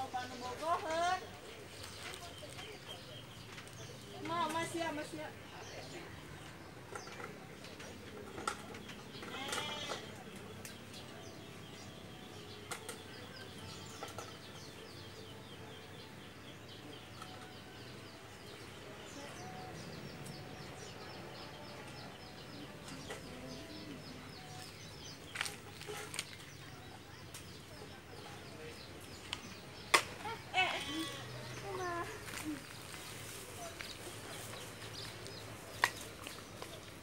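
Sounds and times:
small birds chirping: 0.0 - 37.0
branches snapping: 25.3 - 26.5, 35.3 - 36.7
leaves rustling: 30.4 - 37.0.

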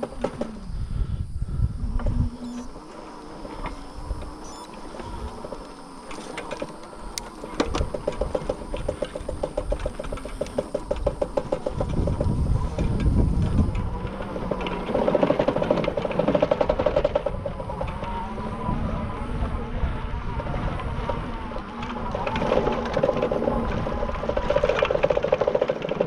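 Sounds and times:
wind on microphone: 0.0 - 26.0
rapid even clicking: 3.6 - 18.0
bike frame rattling: 5.8 - 18.1, 20.3 - 26.0.

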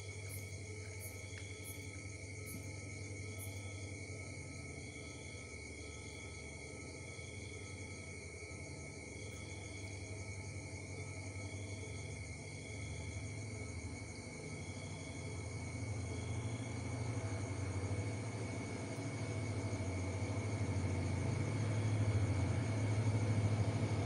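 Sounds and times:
crickets trilling: 0.0 - 24.0
locomotive diesel rumble: 14.6 - 24.0.

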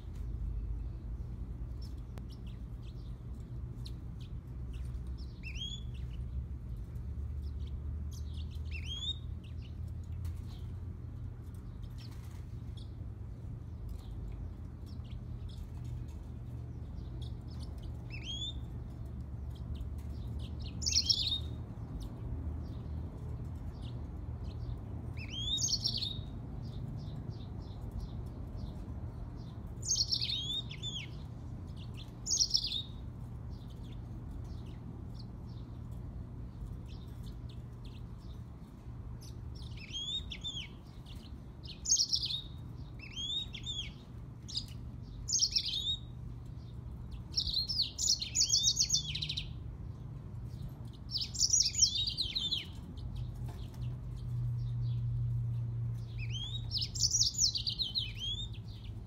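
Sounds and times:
steady low hum: 0.0 - 59.0
bird singing warbling phrases: 1.7 - 10.6, 13.7 - 35.7, 39.1 - 55.0, 56.0 - 59.0.

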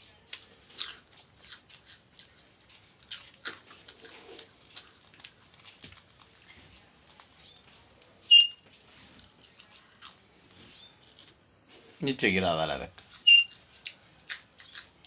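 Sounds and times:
parakeet crunching food: 0.3 - 10.3, 13.0 - 15.0.

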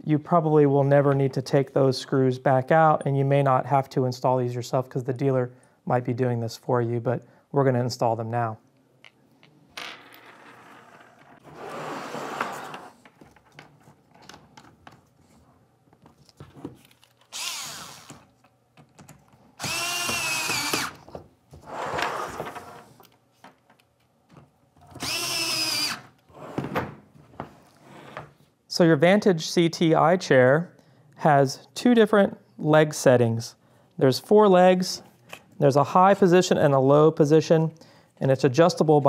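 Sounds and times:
power screwdriver motor whine: 17.3 - 18.2, 19.6 - 21.0, 25.0 - 26.0.

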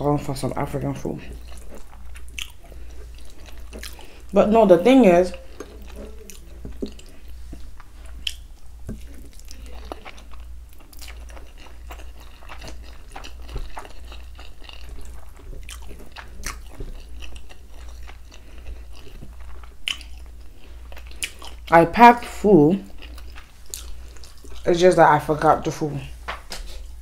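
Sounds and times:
low steady hum: 0.0 - 27.0
chewing with wet smacks: 0.8 - 21.8, 22.8 - 24.8.

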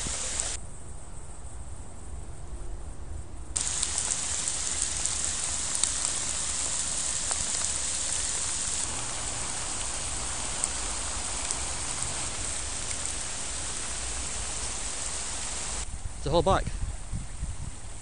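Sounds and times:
heavy rain falling: 0.0 - 0.6, 3.6 - 15.9.

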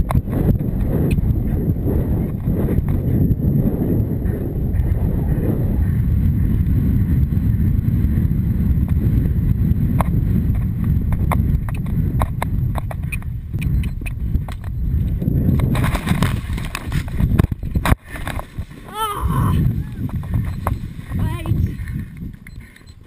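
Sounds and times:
wind rumbling on microphone: 0.0 - 23.0
sharp clicks: 11.1 - 14.8.

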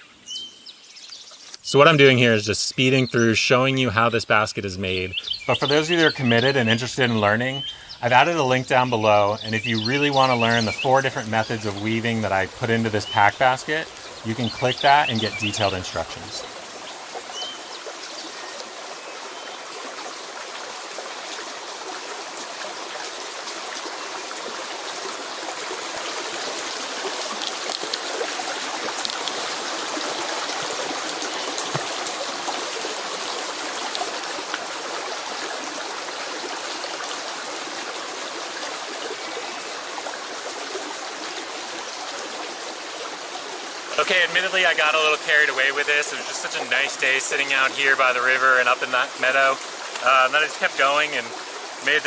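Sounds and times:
creek running over stones: 1.0 - 52.0.

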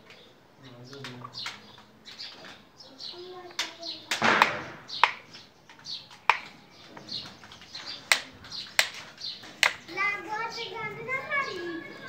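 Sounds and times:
birds chirping: 0.0 - 12.0
sharp clicks: 3.4 - 9.9.

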